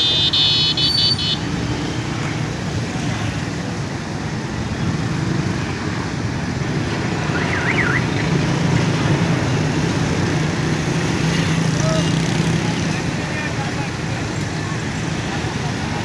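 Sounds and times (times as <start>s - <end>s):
vehicle engines running: 0.0s - 16.0s.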